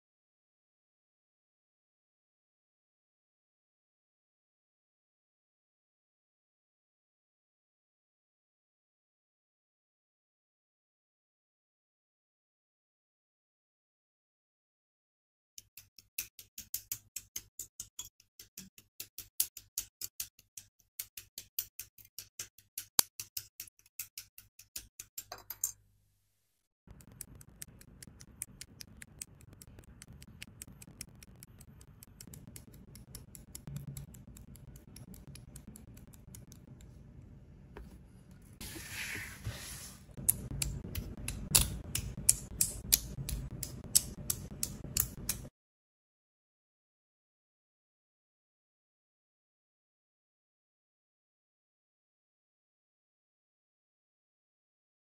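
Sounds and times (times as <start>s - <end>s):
plastic clicks and snaps: 40.2s - 45.5s.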